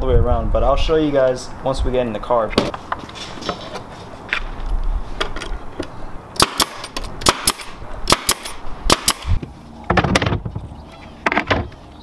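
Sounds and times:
knocks on plywood panels: 9.4s - 11.8s.

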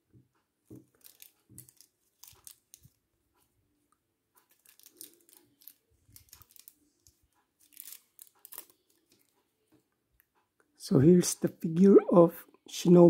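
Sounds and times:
plastic wrapper crinkling: 0.7s - 3.0s, 4.5s - 9.3s.

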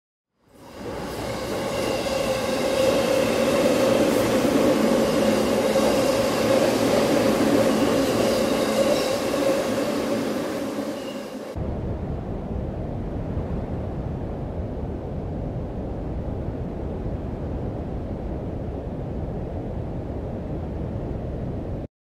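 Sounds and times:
train wheels rumbling on rails: 0.6s - 11.6s.

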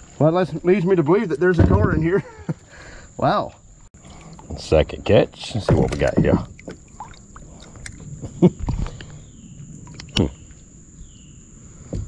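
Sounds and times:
knocks and thuds on kayak: 1.6s - 2.2s, 5.6s - 7.1s
high insect buzz: 6.5s - 12.0s.

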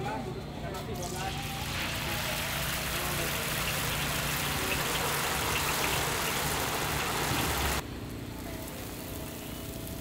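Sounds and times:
food sizzling in hot oil: 1.2s - 7.8s.

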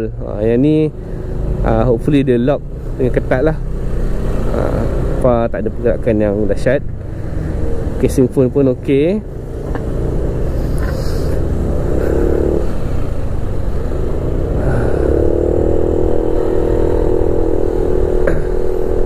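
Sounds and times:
low rumble of road noise: 0.0s - 19.0s
scooter engine running: 6.8s - 19.0s.

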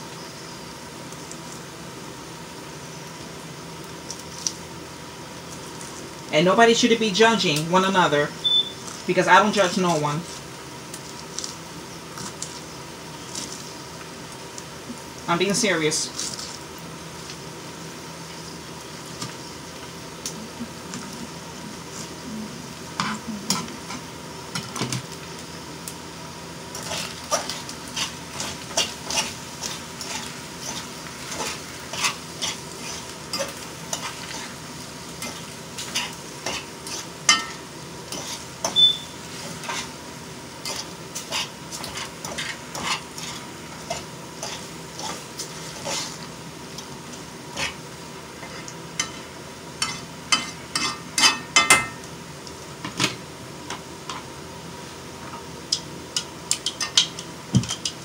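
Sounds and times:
food sizzling: 0.0s - 58.0s
metal utensil scraping a pan: 49.8s - 51.9s.

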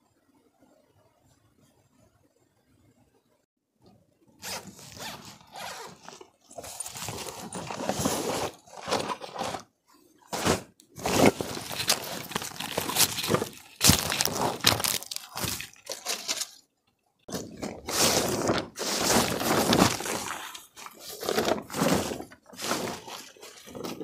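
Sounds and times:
plastic tarp rustling and crinkling: 4.4s - 9.7s, 10.3s - 16.6s, 17.3s - 24.0s
dry leaves crunching underfoot: 11.2s - 16.5s.

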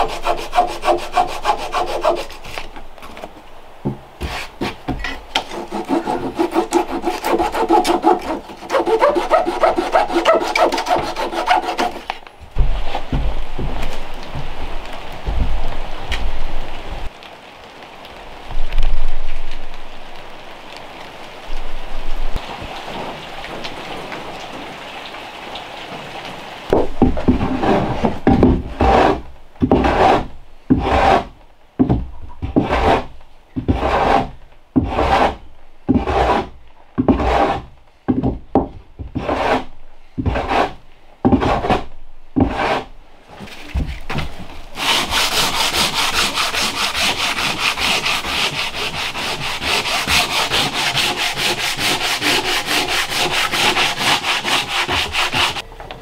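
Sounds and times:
sanding on wooden door: 0.0s - 2.6s, 5.4s - 13.7s, 27.0s - 38.3s, 39.1s - 42.9s, 44.8s - 55.6s
rain: 0.0s - 8.8s, 12.1s - 33.7s, 34.3s - 35.9s.

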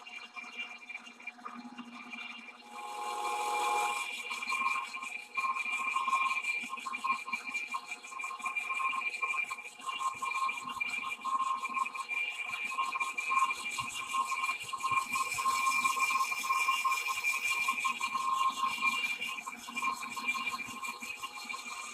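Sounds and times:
lathe cutting metal: 2.7s - 4.1s.

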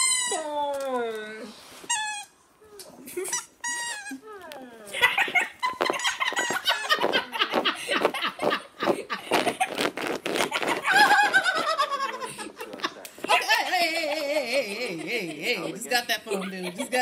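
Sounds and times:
squeaky dog toy squeaking: 0.0s - 0.5s, 1.9s - 2.4s, 3.2s - 4.2s.

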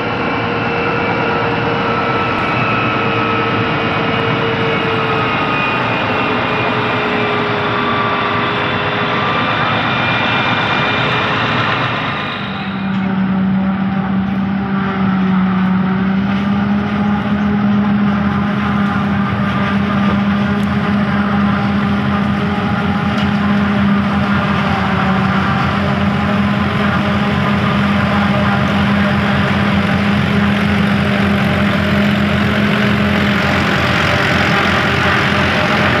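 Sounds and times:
forage harvester drone: 0.0s - 36.0s
tractor engines: 0.0s - 36.0s.

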